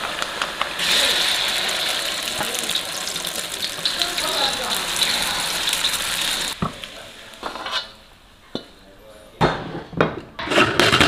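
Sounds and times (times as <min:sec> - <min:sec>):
food sizzling in hot oil: 0:00.0 - 0:08.4.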